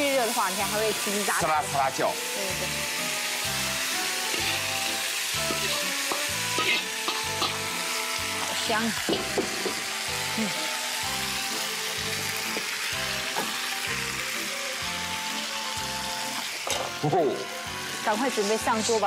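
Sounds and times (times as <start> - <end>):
tofu sizzling in clay pot: 0.0 - 19.0.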